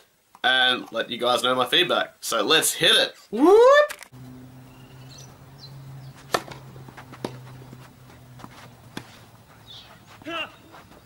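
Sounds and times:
low hum: 4.1 - 10.1
tennis ball hit by racquet: 6.0 - 9.3.

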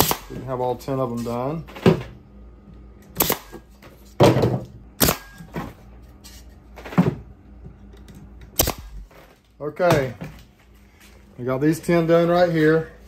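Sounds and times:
pneumatic staple gun firing: 0.0 - 0.4, 3.2 - 3.6, 5.0 - 5.5, 8.6 - 9.1.

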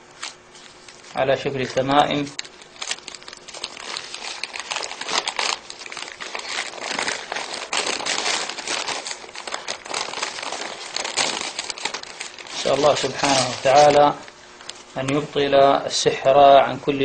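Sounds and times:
paper crinkling and crackling: 0.2 - 15.3.

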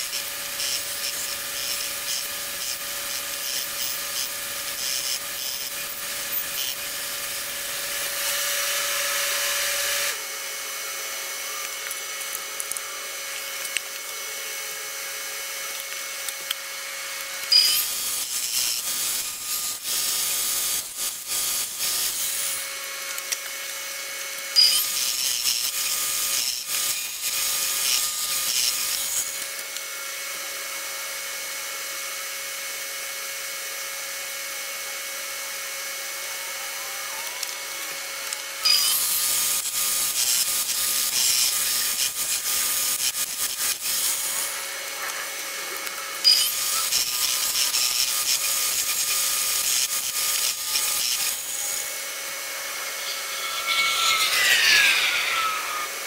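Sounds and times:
knife blade grinding on belt: 0.0 - 7.1, 17.4 - 20.4, 24.6 - 29.4, 38.6 - 56.0
belt grinder humming: 0.0 - 10.2, 15.7 - 23.5, 24.5 - 29.4, 38.2 - 56.0
falling whine: 50.6 - 56.0.

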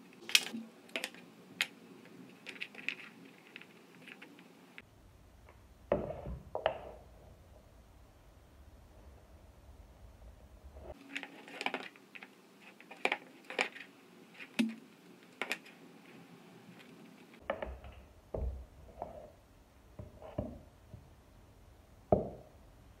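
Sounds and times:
wooden pieces clicking and knocking: 0.0 - 4.9, 10.9 - 15.8.

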